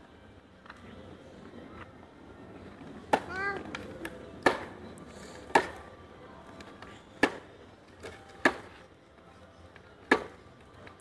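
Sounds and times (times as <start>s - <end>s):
plastic toy clacking on brick paving: 3.0s - 4.7s.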